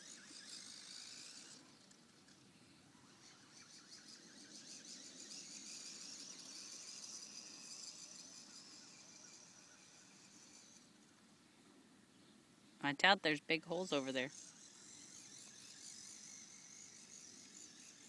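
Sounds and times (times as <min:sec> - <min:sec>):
toy tractor motor whine: 0:00.0 - 0:11.2, 0:13.6 - 0:18.0.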